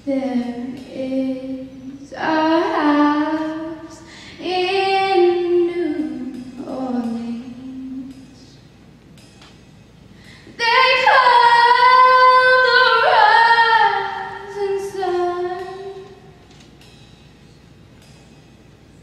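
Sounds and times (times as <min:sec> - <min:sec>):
girl singing into microphone: 0:00.0 - 0:08.6, 0:10.3 - 0:16.4.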